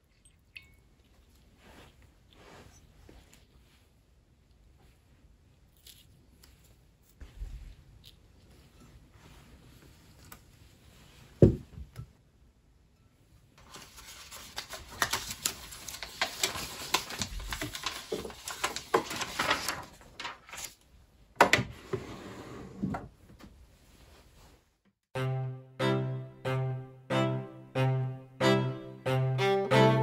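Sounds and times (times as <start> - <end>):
papers rustling and shuffling: 13.6 - 20.9.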